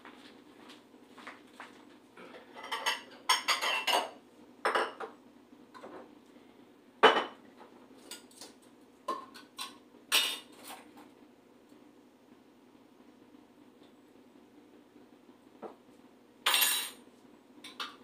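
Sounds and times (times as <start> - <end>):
dishes and cutlery clattering: 2.2 - 5.0, 9.1 - 10.7, 16.5 - 17.0.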